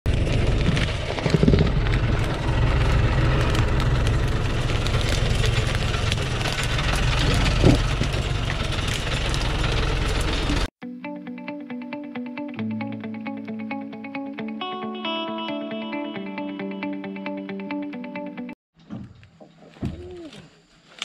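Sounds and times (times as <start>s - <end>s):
diesel engine idling: 0.1s - 10.7s.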